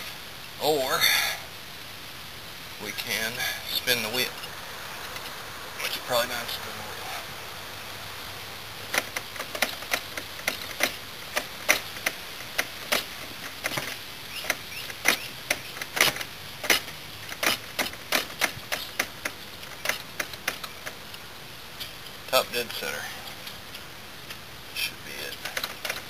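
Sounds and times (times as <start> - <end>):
sharp mechanical clicks: 8.9 - 21.0.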